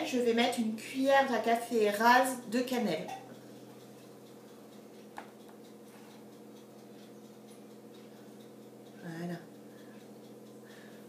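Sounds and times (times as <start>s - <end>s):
faint steady hum: 0.0s - 11.0s
faint ticks: 3.3s - 11.0s.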